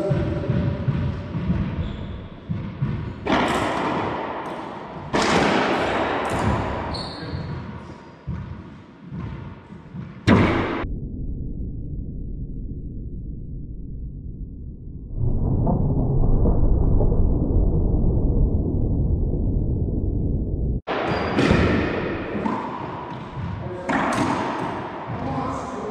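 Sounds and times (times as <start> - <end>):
ball cracking off racquets and walls: 0.5 - 7.6.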